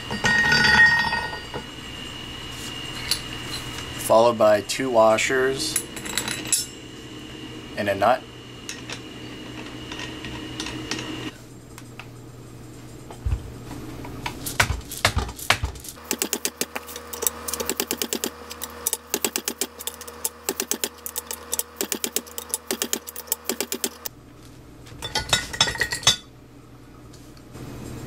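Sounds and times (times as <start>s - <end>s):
ratchet wrench clicking: 14.5s - 24.1s.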